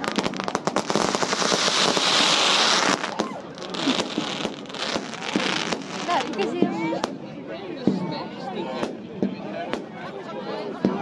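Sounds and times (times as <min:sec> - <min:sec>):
fireworks crackling: 0:00.0 - 0:07.2.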